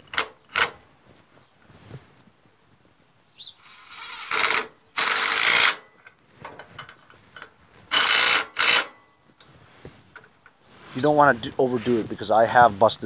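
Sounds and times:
impact driver hammering bolts: 0.0s - 0.8s, 3.9s - 9.0s.

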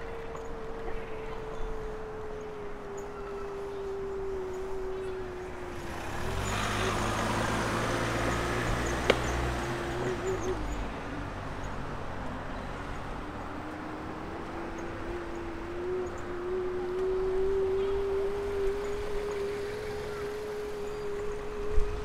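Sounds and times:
car driving past: 5.6s - 13.5s
steady hum: 13.2s - 22.0s.

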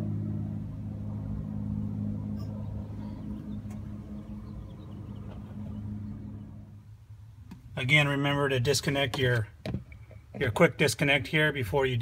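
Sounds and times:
low engine hum: 0.0s - 10.8s.

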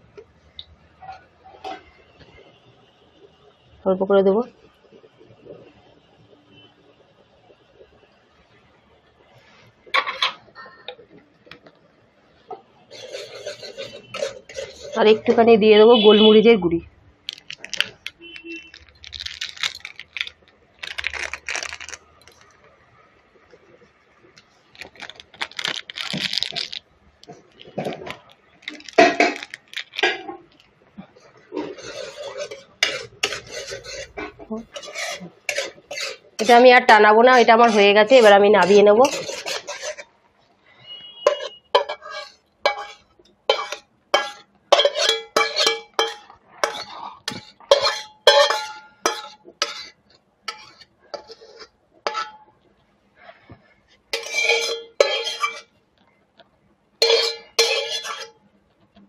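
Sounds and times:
metal spatula scraping a wok: 12.9s - 15.4s, 31.5s - 40.1s, 40.8s - 52.4s, 54.1s - 55.7s, 57.0s - 58.4s.

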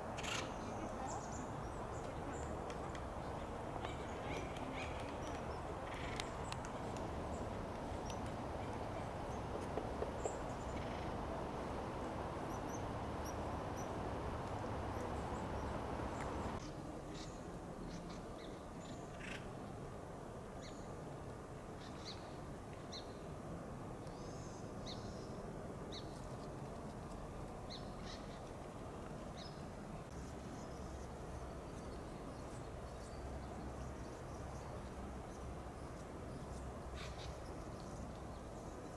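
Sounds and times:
low background noise: 0.0s - 38.9s
woodpeckers calling: 2.8s - 11.3s.

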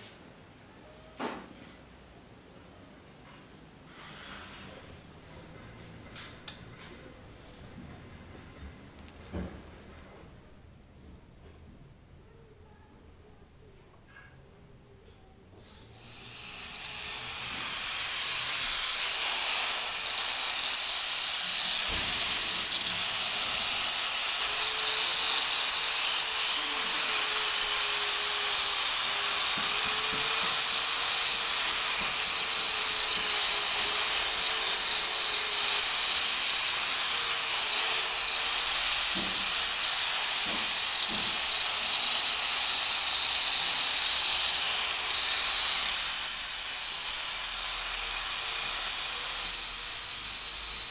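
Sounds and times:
angle grinder sanding metal: 16.0s - 50.9s.

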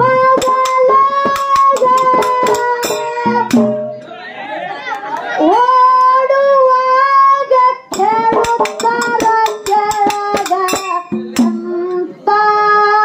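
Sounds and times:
woman singing through microphone: 0.0s - 3.6s, 5.4s - 13.0s
sharp percussion strikes: 0.0s - 4.1s, 7.9s - 11.8s.

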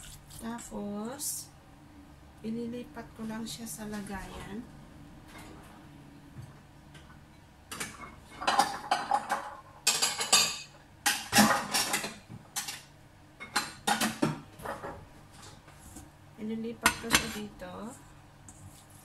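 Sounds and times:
dishes clattering and clinking: 6.4s - 15.6s.

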